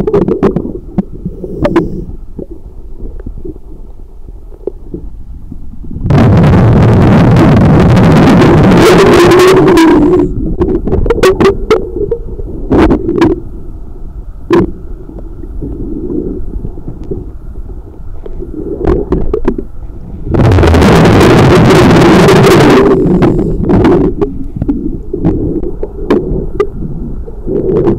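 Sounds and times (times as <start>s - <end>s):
low underwater rumble: 0.0s - 27.9s
underwater rushing: 0.0s - 27.9s.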